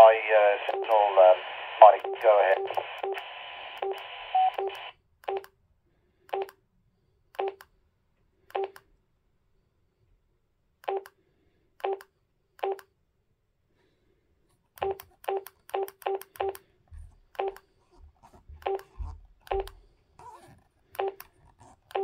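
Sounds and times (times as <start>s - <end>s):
radio receiver hiss: 0.0s - 4.9s
radio key beeps: 0.0s - 5.4s.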